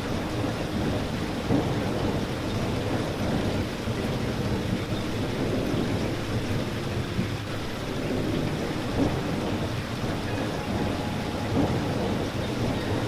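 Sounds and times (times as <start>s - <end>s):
steady rain falling: 0.0s - 13.0s
low rumble: 7.9s - 13.0s.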